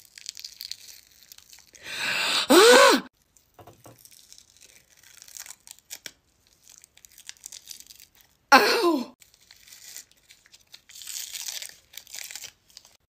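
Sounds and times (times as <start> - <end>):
faint crackling of peeling adhesive: 0.0 - 1.8, 3.2 - 8.4, 9.2 - 13.0
woman's sharp hissing breath: 1.8 - 3.1, 8.5 - 9.1
woman's short pained cry: 2.3 - 3.1, 8.5 - 9.1.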